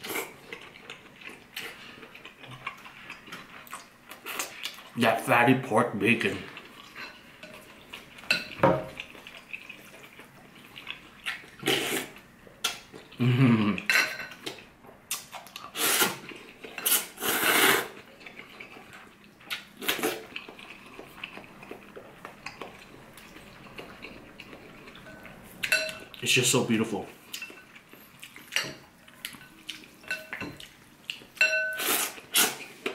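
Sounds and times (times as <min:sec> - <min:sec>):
wet noodle slurps: 0:11.6 - 0:12.2, 0:15.6 - 0:18.0, 0:31.8 - 0:32.8.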